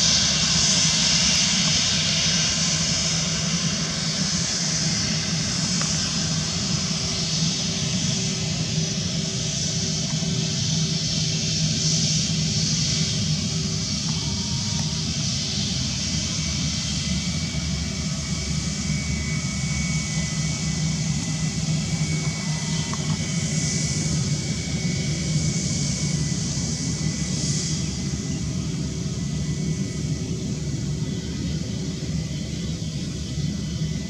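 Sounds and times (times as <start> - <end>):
jet engine whine: 0.0 - 34.0
jet engines rumbling: 0.0 - 34.0.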